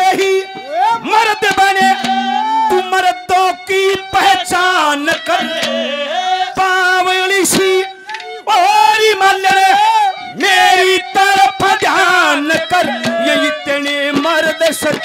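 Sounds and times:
harmonium drone: 0:00.0 - 0:15.0
man singing in high voice: 0:00.0 - 0:15.0
hand drum strokes: 0:01.5 - 0:02.9, 0:12.8 - 0:13.5.

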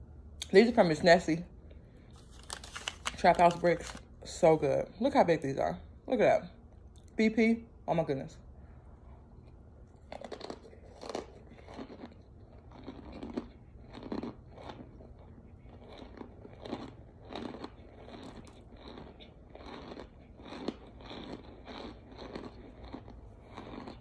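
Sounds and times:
person chewing dry crunches: 0:02.0 - 0:04.0, 0:09.3 - 0:24.0.

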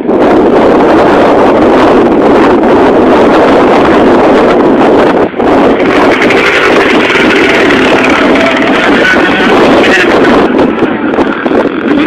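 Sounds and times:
wind buffeting microphone: 0:00.0 - 0:12.0
dirt bike engines running: 0:05.4 - 0:12.0.

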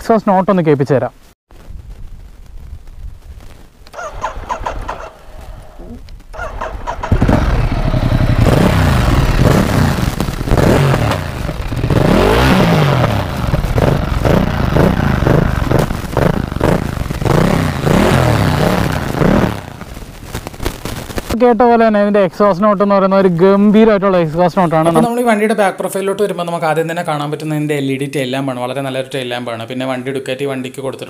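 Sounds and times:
motorcycle engine revving: 0:05.8 - 0:19.9.

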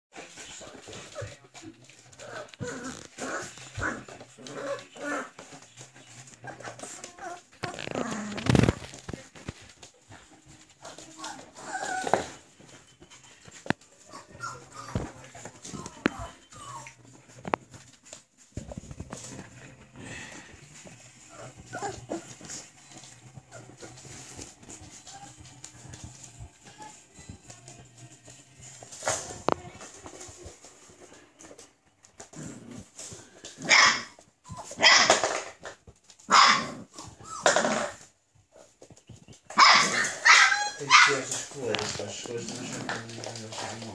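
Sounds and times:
puppies whimpering and whining: 0:00.3 - 0:09.0, 0:10.5 - 0:17.5, 0:19.7 - 0:27.8, 0:36.9 - 0:37.6, 0:39.0 - 0:41.3
puppies barking: 0:33.6 - 0:35.2, 0:36.3 - 0:37.8, 0:39.5 - 0:41.5.

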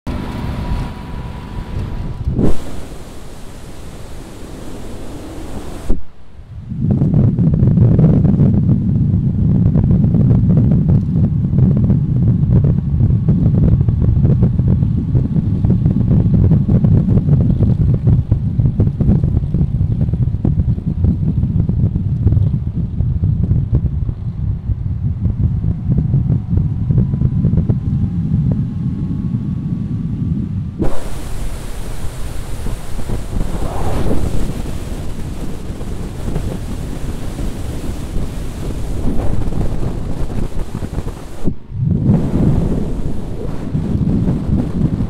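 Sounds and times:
faint rising whine: 0:00.1 - 0:06.9, 0:30.8 - 0:36.6
wind buffeting microphone: 0:00.1 - 0:45.0.

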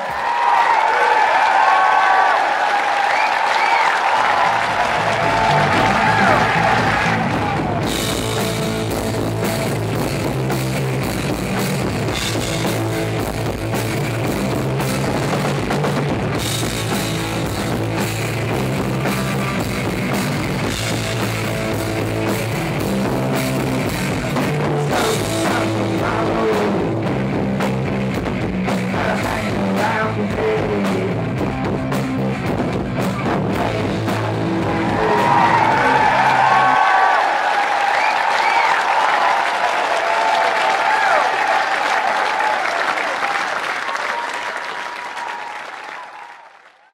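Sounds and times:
bass guitar: 0:04.2 - 0:37.2
guitar: 0:04.4 - 0:36.9
drum kit beat: 0:04.4 - 0:37.0.

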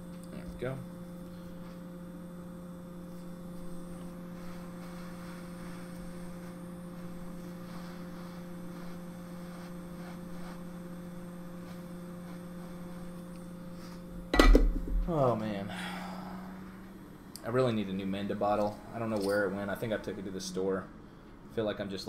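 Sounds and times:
electrical hum: 0:00.0 - 0:22.0
faint handling sounds: 0:03.0 - 0:14.3.

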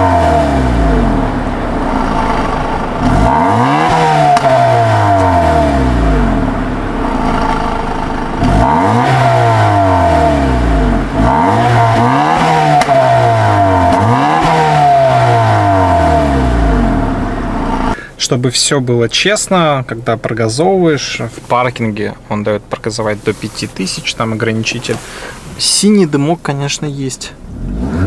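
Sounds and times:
car engine revving: 0:00.0 - 0:18.0, 0:27.4 - 0:28.0.

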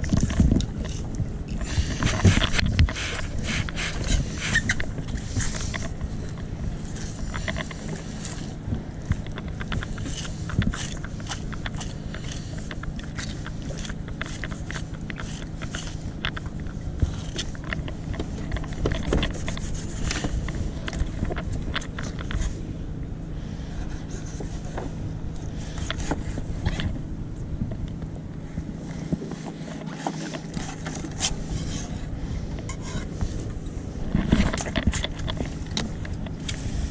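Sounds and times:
low hum: 0:00.0 - 0:36.9
knife scraping fish: 0:09.6 - 0:17.6.

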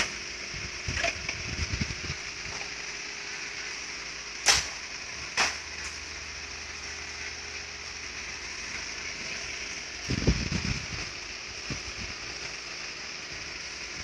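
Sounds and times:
sharp mechanical clicks: 0:04.4 - 0:04.8.

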